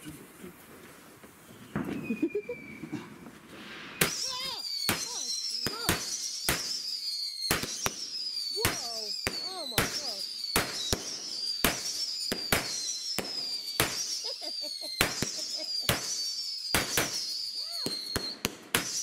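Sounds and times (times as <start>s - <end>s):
descending firework whistle: 1.4s - 19.0s
firework cracks: 3.2s - 19.0s
hiss of sparks: 11.6s - 17.3s, 18.7s - 19.0s.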